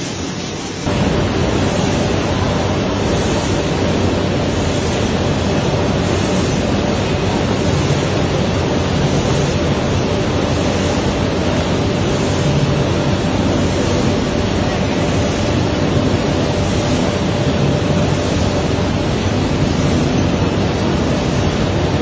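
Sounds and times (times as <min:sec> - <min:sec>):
machinery humming loudly: 0:00.0 - 0:22.0.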